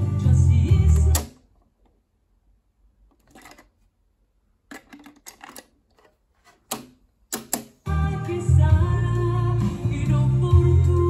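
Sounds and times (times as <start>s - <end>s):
cassette deck slot clicks: 0.9s - 1.4s, 6.7s - 7.8s.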